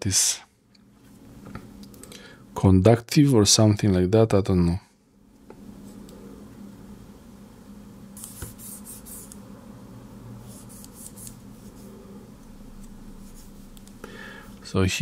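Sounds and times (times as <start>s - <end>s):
low steady hum: 0.0s - 15.0s
fingertip rubbing a label: 10.5s - 11.9s.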